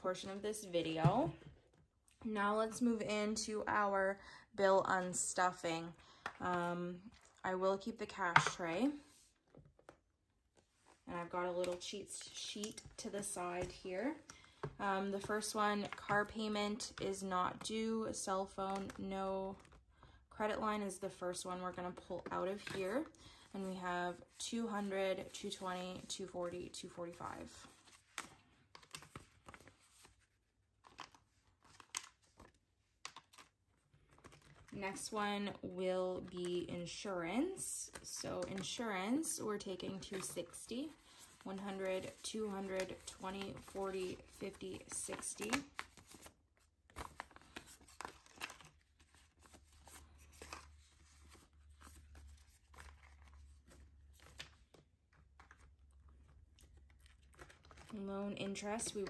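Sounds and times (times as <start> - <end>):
banknotes crinkling: 27.1 - 35.1, 37.8 - 59.0.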